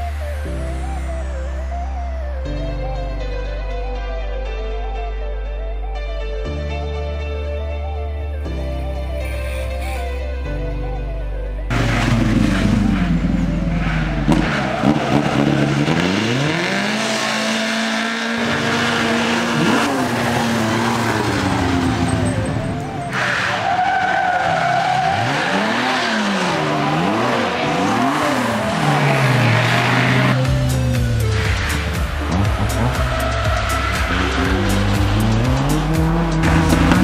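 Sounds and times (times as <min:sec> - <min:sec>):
rally car engines revving: 0:11.7 - 0:37.0.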